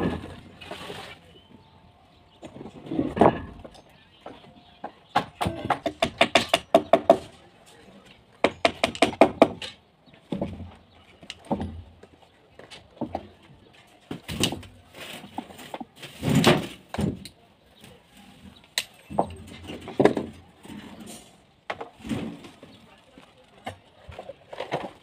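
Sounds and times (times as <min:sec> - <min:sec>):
knocks and scrapes on wooden boards: 0:02.3 - 0:07.8, 0:18.3 - 0:25.0.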